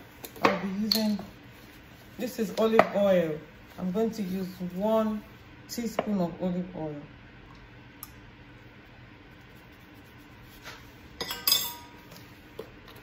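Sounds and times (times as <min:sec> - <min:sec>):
teaspoon clinking on metal bowl: 0:11.2 - 0:12.2.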